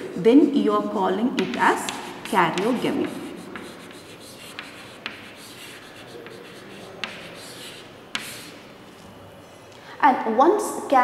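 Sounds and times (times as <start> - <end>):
chalk ticking on board: 1.4 - 8.6
chalk scratching on chalkboard: 1.4 - 8.7.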